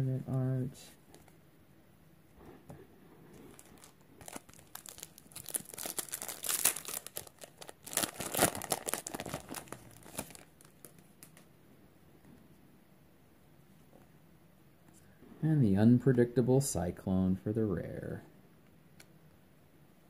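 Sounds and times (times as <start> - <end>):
foil wrapper crinkling and tearing: 3.5 - 11.4.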